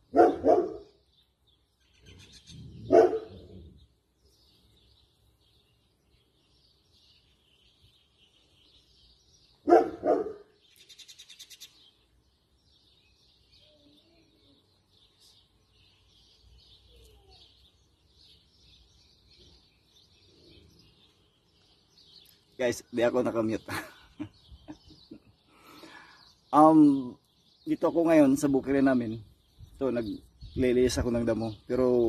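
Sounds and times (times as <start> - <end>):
birds chirping: 0.0 - 32.0
dog barking: 0.1 - 1.0, 2.8 - 3.5, 9.6 - 10.6.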